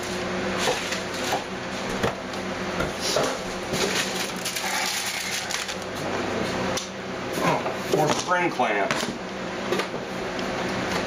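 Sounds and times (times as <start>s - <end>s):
packaging crinkling and rustling: 3.8s - 5.9s.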